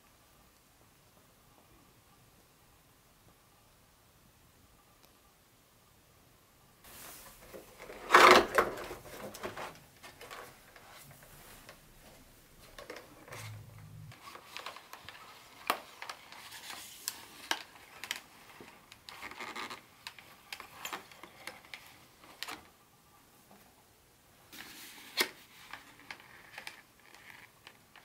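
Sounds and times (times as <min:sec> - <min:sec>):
cardboard and plastic rubbing: 0:06.9 - 0:11.8.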